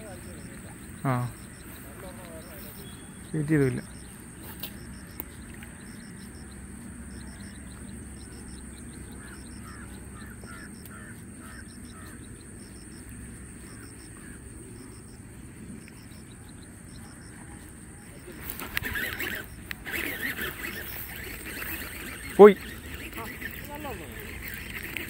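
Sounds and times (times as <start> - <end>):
bird calls: 0.0 - 25.0
high-pitched drone: 18.0 - 25.0.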